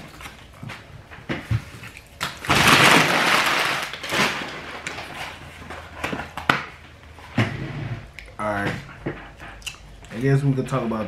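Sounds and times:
paper bag rustling: 2.4s - 6.0s.

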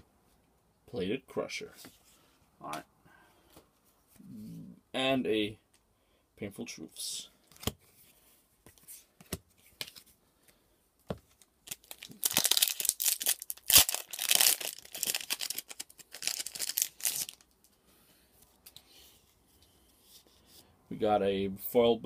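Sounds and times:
foil wrapper crackling: 11.6s - 17.5s.

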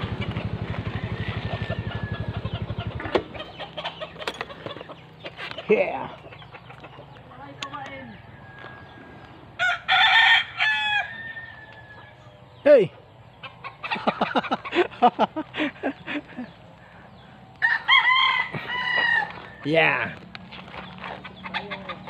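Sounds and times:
poultry clucking: 0.0s - 9.5s, 11.3s - 22.0s
poultry squawk: 0.1s - 7.8s, 17.0s - 19.7s
rooster crowing: 0.6s - 2.6s, 8.3s - 12.4s, 17.6s - 19.6s.

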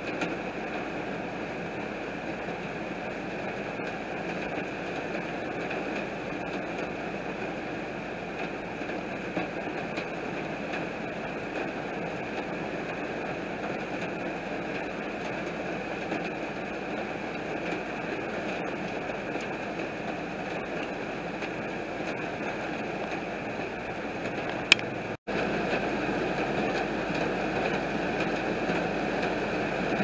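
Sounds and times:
heavy rain on car windshield: 25.3s - 30.0s.

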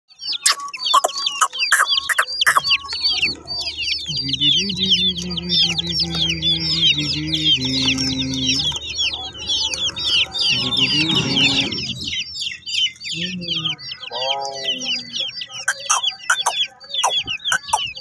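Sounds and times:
baby chicks peeping: 0.1s - 18.0s.

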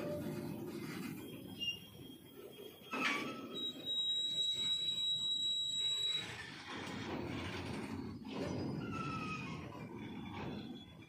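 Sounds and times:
high-pitched squeal of running gear: 0.0s - 6.8s
train wheels rumbling on rail: 0.0s - 11.0s.

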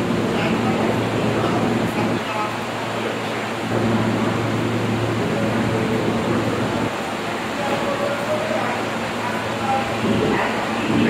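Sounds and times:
subway car low hum: 0.0s - 11.0s.

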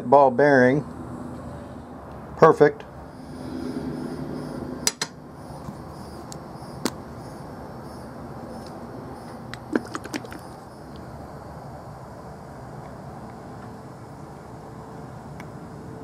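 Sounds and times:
quick run of clicks: 9.5s - 10.6s.

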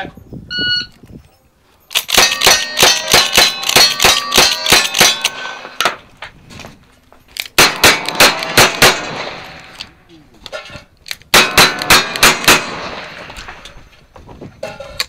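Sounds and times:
steel plates ringing: 1.9s - 6.0s
rifle shots: 2.0s - 5.9s, 7.6s - 9.9s, 11.3s - 13.7s.

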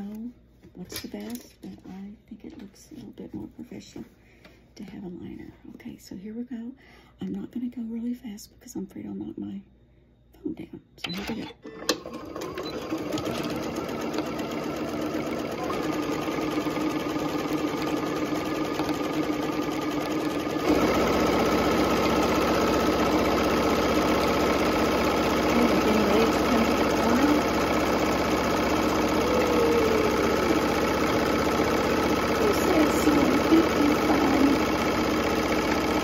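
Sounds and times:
electric sewing machine stitching: 11.2s - 36.0s.

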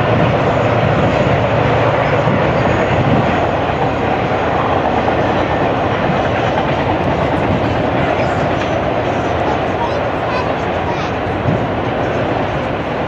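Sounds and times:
freight train passing: 0.0s - 13.0s.

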